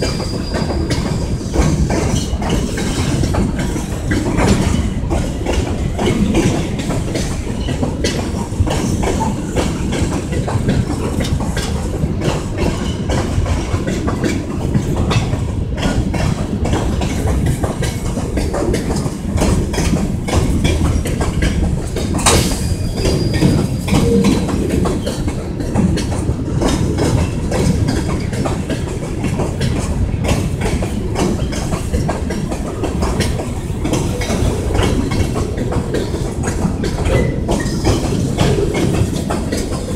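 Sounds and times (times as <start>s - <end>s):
freight train rumbling: 0.0s - 39.9s
wheels clacking over rail joints: 0.0s - 39.9s
brief high-pitched sound: 24.0s - 25.0s.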